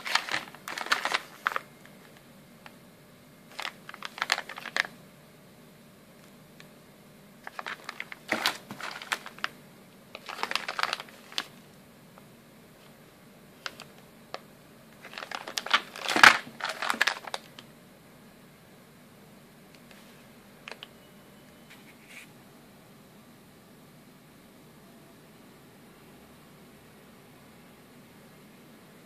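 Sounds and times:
plastic bag crinkling: 0.0s - 2.2s, 3.5s - 4.9s, 7.4s - 11.6s, 15.0s - 17.6s.

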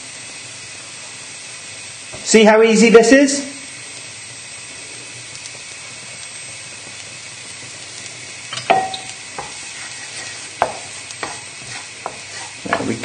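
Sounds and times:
shallots sizzling in oil: 0.0s - 13.0s
wooden spoon knocking against pan: 10.6s - 11.4s.

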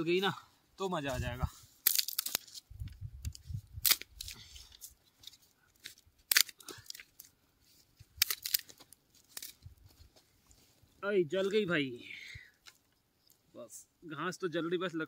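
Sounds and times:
campfire crackling: 1.7s - 13.9s
sticks being shifted: 1.8s - 7.4s, 8.1s - 9.6s.

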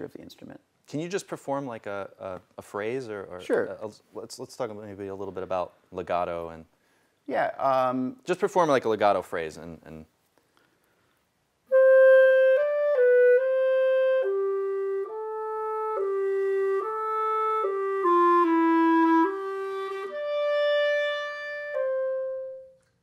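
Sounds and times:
solo clarinet playing: 11.7s - 22.9s.

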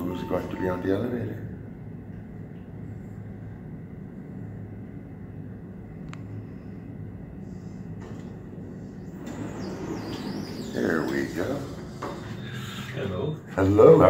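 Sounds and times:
elevator humming in shaft: 0.0s - 14.0s
elevator doors sliding open: 7.9s - 13.3s.

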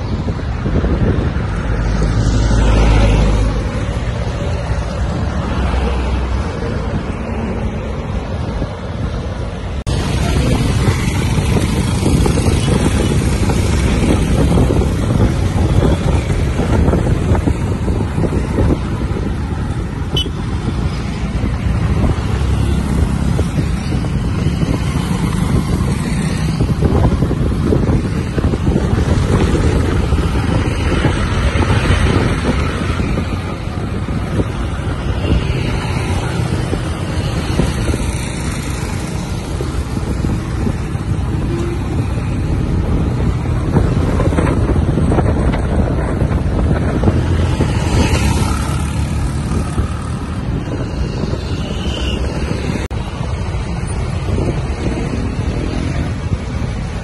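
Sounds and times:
vehicle engine and road noise: 0.0s - 57.0s
wind buffeting microphone: 0.0s - 57.0s.

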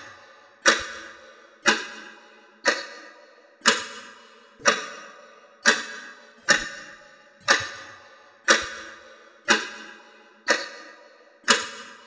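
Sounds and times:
clock ticking: 3.6s - 4.0s, 4.6s - 9.8s, 11.4s - 11.8s.

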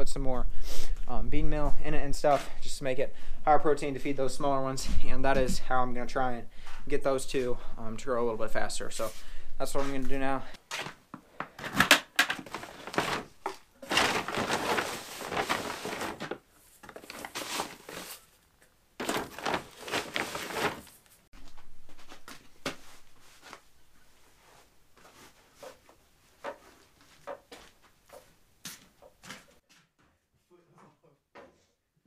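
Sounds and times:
feed rustling by hand: 10.7s - 18.4s, 19.0s - 21.2s.

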